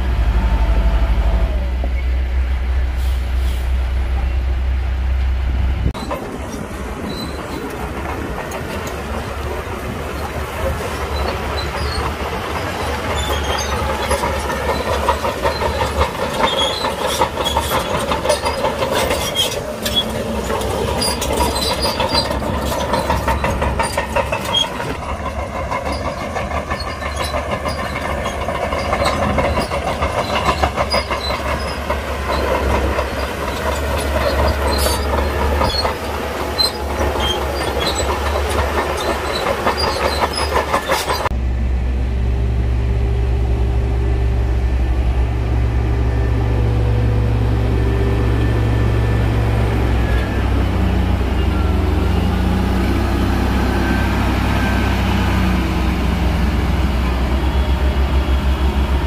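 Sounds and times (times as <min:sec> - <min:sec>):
diesel engine running: 0:00.0 - 0:06.0, 0:09.5 - 0:59.0
steel tracks clattering and squeaking: 0:05.8 - 0:41.4, 0:46.1 - 0:59.0.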